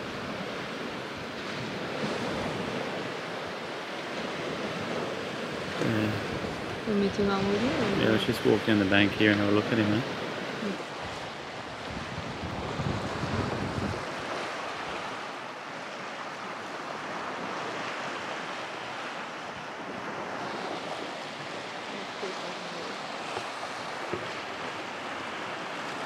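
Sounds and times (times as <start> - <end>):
small waves lapping: 0.0 - 26.0
wind on microphone: 0.0 - 26.0.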